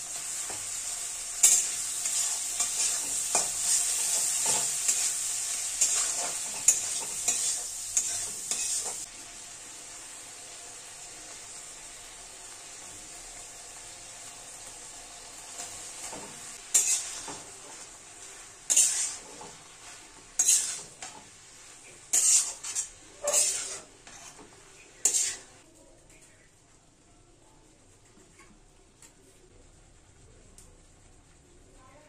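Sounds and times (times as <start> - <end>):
food sizzling in hot oil: 0.0 - 25.7
metal spatula scraping pan: 0.2 - 9.1, 15.6 - 25.6.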